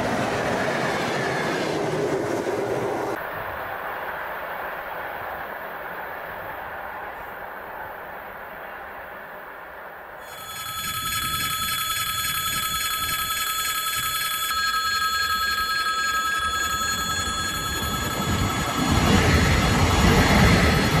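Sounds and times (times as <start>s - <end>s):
level crossing bell ringing: 10.3s - 21.0s.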